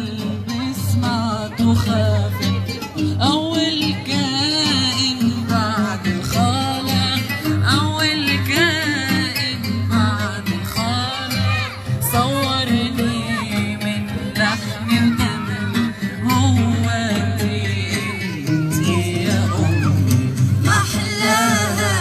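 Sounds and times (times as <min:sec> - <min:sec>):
oud and instrumental accompaniment: 0:00.0 - 0:22.0
group singing in unison: 0:20.6 - 0:22.0.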